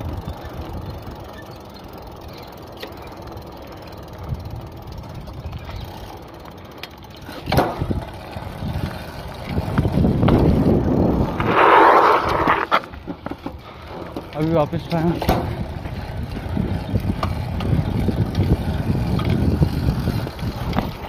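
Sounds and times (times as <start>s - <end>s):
bike tyres on asphalt: 0.0s - 21.0s
wind on microphone: 7.7s - 12.8s, 15.3s - 21.0s.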